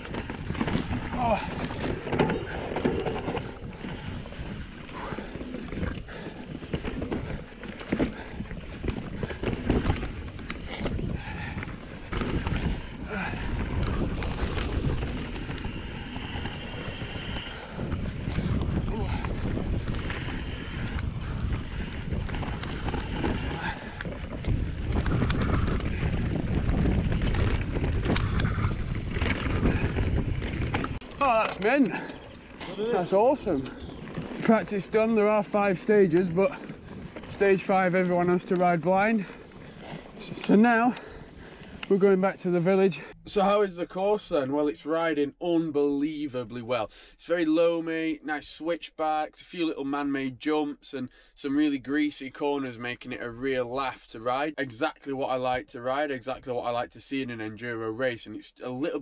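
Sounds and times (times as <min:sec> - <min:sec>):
wind buffeting microphone: 0:00.0 - 0:43.1
bike rattling over bumps: 0:00.0 - 0:43.2
bike tyres rumbling over dirt: 0:00.0 - 0:44.1.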